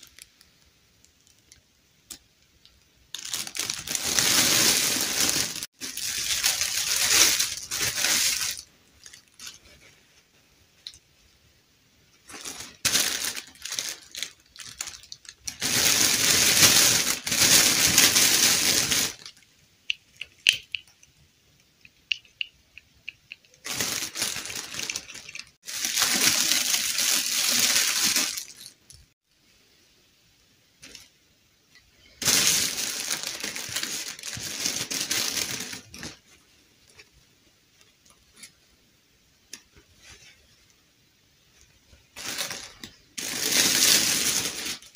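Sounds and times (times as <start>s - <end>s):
plastic bag crinkling: 3.1s - 9.9s, 12.2s - 19.4s, 23.4s - 29.1s, 32.1s - 36.3s, 42.2s - 44.9s.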